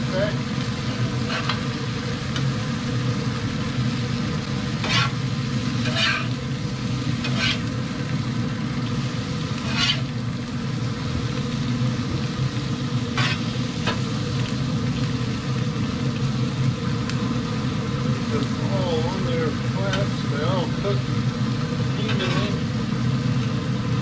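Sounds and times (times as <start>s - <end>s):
food sizzling on a grill: 0.0s - 24.0s
metal spatula scraping grate: 0.9s - 1.6s, 4.8s - 5.2s, 5.8s - 6.4s, 7.2s - 7.7s, 9.6s - 10.2s, 13.2s - 13.5s, 22.0s - 22.5s.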